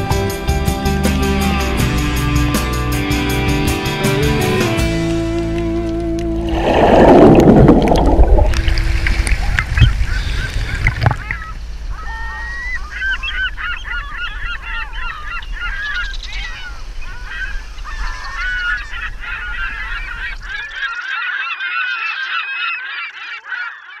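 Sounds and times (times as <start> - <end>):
low rumble: 6.1 - 12.3
flock of birds honking: 9.8 - 24.0.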